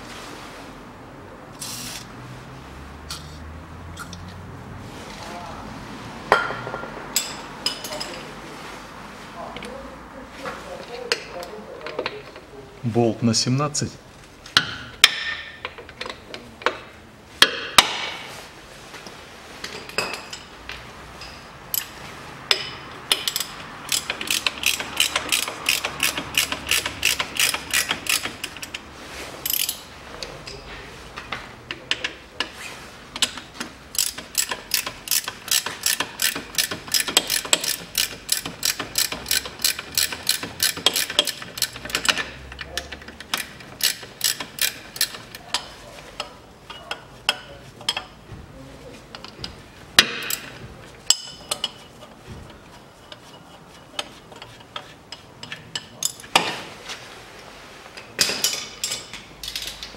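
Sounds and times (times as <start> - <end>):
ratchet wrench clicking: 22.5 - 28.8, 29.5 - 29.8, 33.2 - 45.4.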